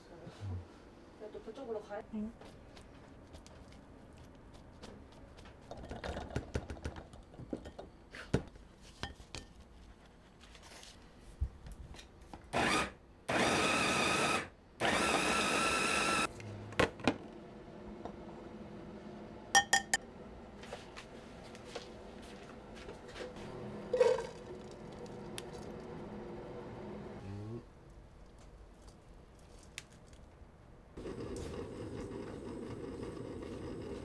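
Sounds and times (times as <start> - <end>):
food chopper motor whirring: 12.6 - 16.3.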